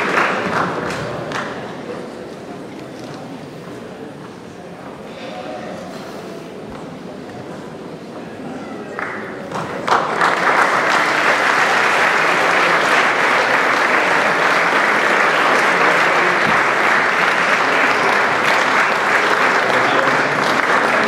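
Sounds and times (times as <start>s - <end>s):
audience applauding: 0.0s - 1.6s, 9.0s - 21.0s.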